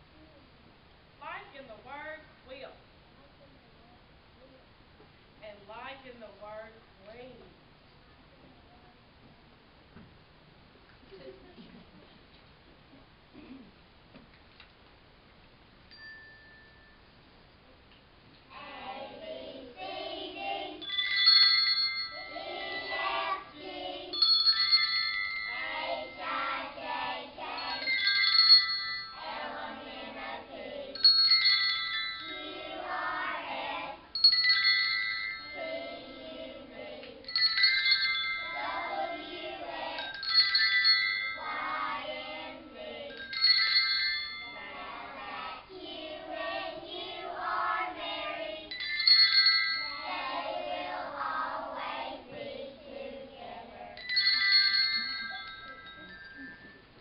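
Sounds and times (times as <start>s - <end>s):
handbells ringing: 15.9s - 17.2s, 20.7s - 30.4s, 31.0s - 33.2s, 34.1s - 45.2s, 48.7s - 50.6s, 54.0s - 57.0s
children singing: 18.5s - 21.3s, 22.2s - 24.2s, 25.5s - 28.1s, 29.2s - 31.0s, 32.2s - 34.0s, 38.5s - 40.2s, 41.4s - 43.2s, 44.6s - 48.8s, 50.1s - 54.0s.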